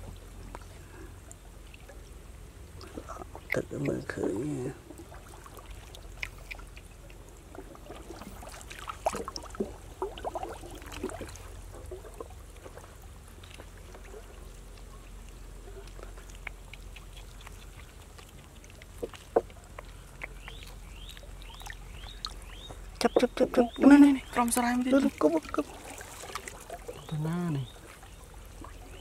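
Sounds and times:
water dripping and trickling: 0:01.3 - 0:29.0
hands splashing in pond water: 0:04.9 - 0:14.4, 0:15.8 - 0:29.0.

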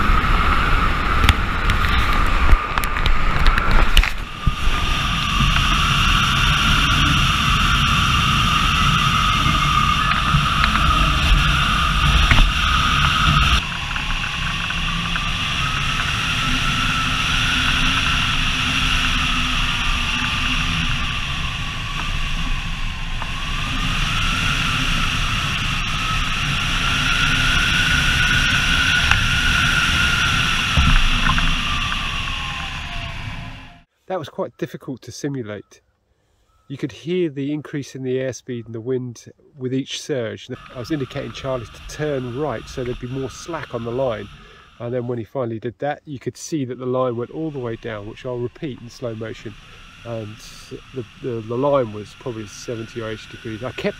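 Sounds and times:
plane engine drone: 0:00.0 - 0:33.9, 0:40.5 - 0:45.3, 0:46.6 - 0:53.9
wind rushing: 0:00.0 - 0:33.9.

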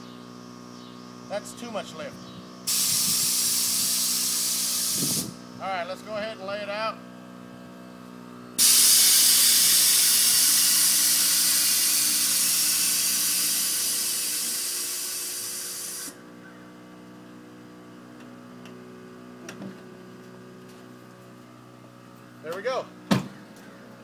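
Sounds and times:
air hissing from suspension: 0:02.7 - 0:05.4, 0:08.6 - 0:16.2.

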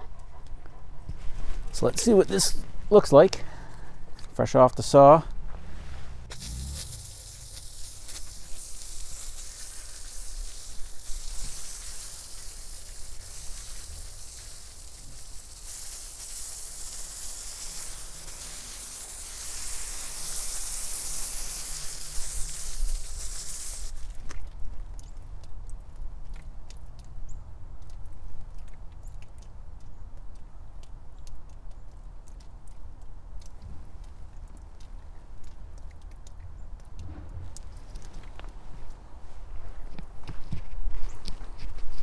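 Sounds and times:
water spraying on stone: 0:06.2 - 0:25.1.

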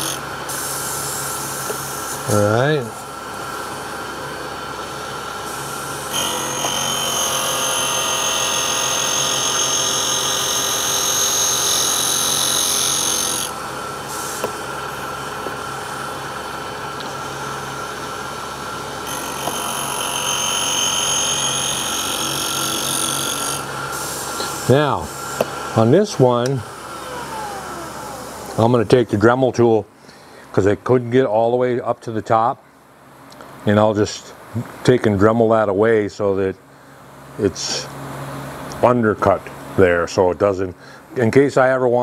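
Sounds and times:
grinding wheel motor hum: 0:14.6 - 0:29.2.

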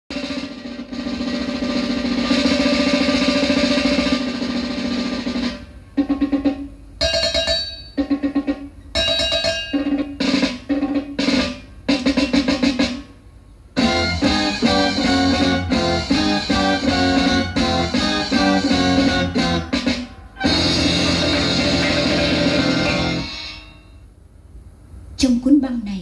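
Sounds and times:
drum roll: 0:00.1 - 0:24.1
short punchy chords: 0:13.8 - 0:23.4
held chord: 0:13.8 - 0:23.9.

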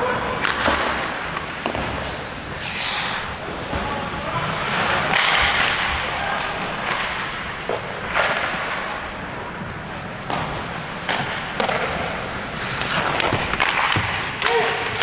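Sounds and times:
skates scraping on ice: 0:00.0 - 0:15.0
hockey sticks and puck knocking: 0:00.3 - 0:02.3, 0:04.8 - 0:15.0
sharp hockey hits: 0:10.3 - 0:15.0.

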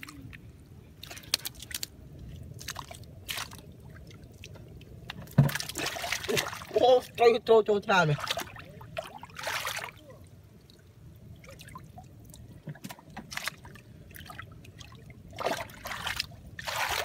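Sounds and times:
hands splashing in water: 0:13.3 - 0:17.0.

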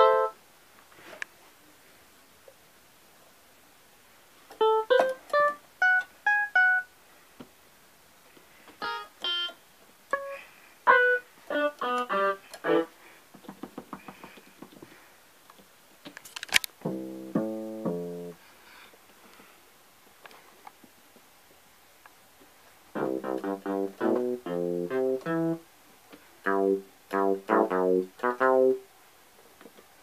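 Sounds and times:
piano-like keyboard notes: 0:00.0 - 0:00.4, 0:04.6 - 0:06.9, 0:08.8 - 0:12.9, 0:16.8 - 0:18.4, 0:23.0 - 0:25.6, 0:26.4 - 0:28.8.

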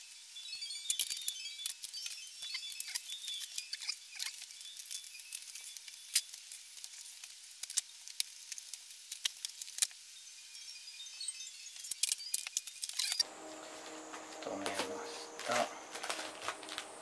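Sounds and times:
cardboard crackling: 0:13.5 - 0:17.0.

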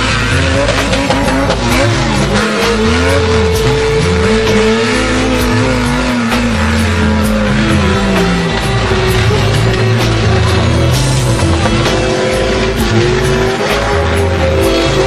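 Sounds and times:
car engine revving: 0:00.0 - 0:15.0
song with bass and vocals: 0:00.0 - 0:15.0.

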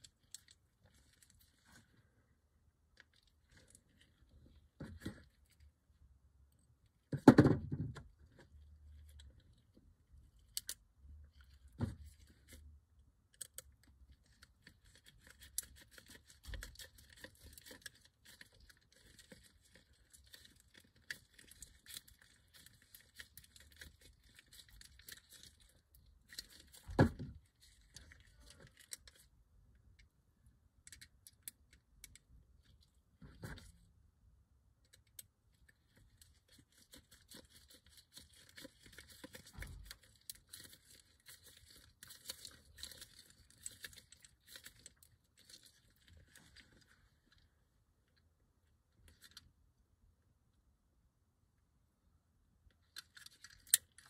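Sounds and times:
small parts clicking: 0:10.4 - 0:10.8, 0:52.8 - 0:54.0.

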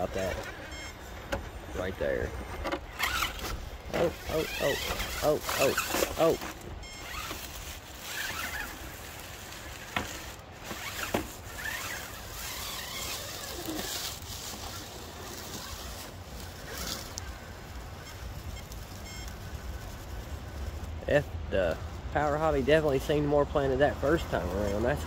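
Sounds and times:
rc car motor and gears whirring: 0:00.0 - 0:25.0
tyres scraping on rock: 0:01.4 - 0:17.3.

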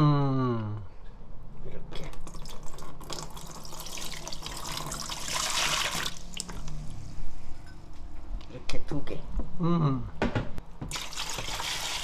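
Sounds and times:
liquid pouring and splashing: 0:02.0 - 0:06.6, 0:10.9 - 0:12.0.

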